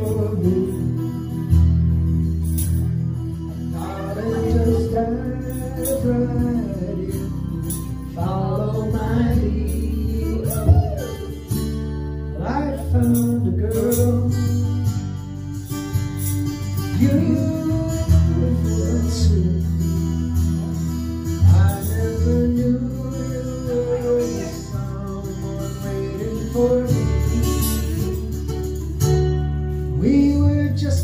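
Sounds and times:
acoustic guitar strummed and plucked: 0.0s - 31.0s
person singing: 3.7s - 11.5s, 21.4s - 28.6s.

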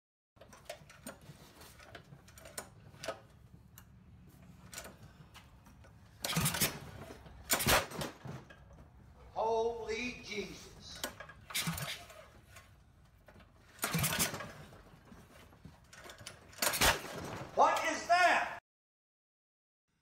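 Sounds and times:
recoil starter rope pulled: 0.4s - 9.0s, 11.0s - 17.4s
short voice-like sound: 17.6s - 18.6s.

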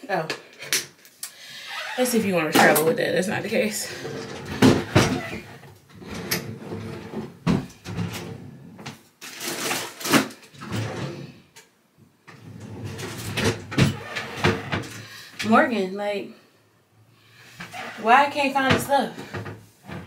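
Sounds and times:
rustling of objects: 3.8s - 11.3s
drawers and doors opening and shutting: 3.8s - 11.6s, 12.3s - 15.6s, 17.4s - 20.0s.

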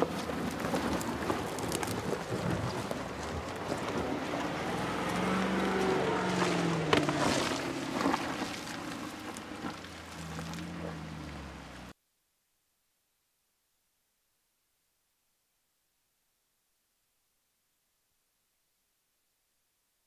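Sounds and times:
engine running: 0.0s - 11.9s
off-road rumble: 0.0s - 12.0s.

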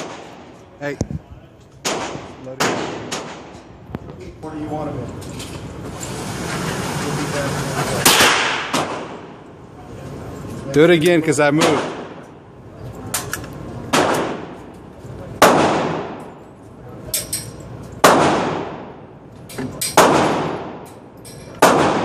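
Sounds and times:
gunshots echoing indoors: 0.0s - 0.6s, 1.8s - 3.6s, 8.0s - 9.4s, 11.6s - 12.3s, 13.9s - 14.6s, 15.4s - 16.3s, 18.0s - 19.0s, 19.8s - 20.9s, 21.6s - 22.0s.

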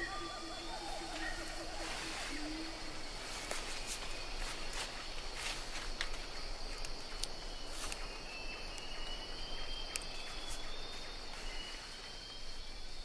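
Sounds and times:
insect chorus buzzing: 0.0s - 13.0s
thin high insect tone: 0.0s - 13.0s.

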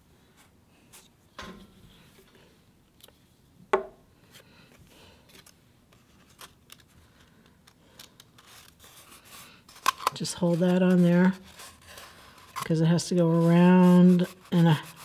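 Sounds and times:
paper rustling: 7.9s - 15.0s
glue stick rubbing on paper: 10.2s - 15.0s.

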